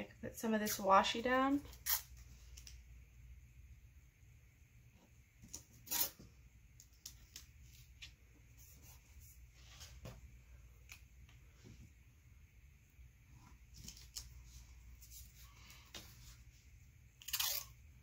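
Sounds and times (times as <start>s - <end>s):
tape tearing: 1.7s - 2.2s, 5.4s - 6.2s, 17.2s - 17.8s.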